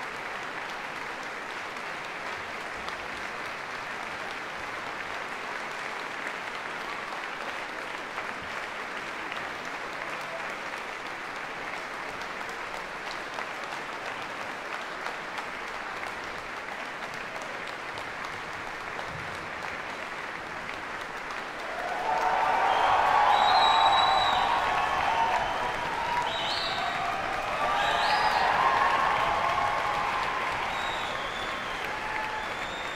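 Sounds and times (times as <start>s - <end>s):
audience applauding: 0.0s - 32.9s.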